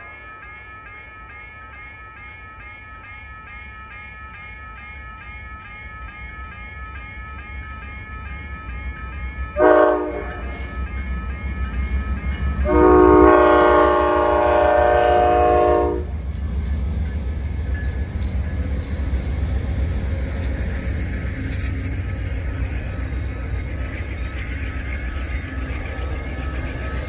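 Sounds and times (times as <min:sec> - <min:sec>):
train rumbling over rails: 0:05.4 - 0:27.0
locomotive chime horn: 0:09.5 - 0:11.2, 0:12.6 - 0:16.2.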